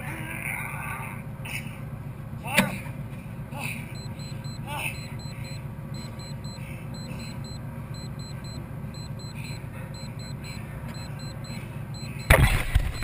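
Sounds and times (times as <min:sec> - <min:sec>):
timer alarm beeping: 0:03.9 - 0:13.0.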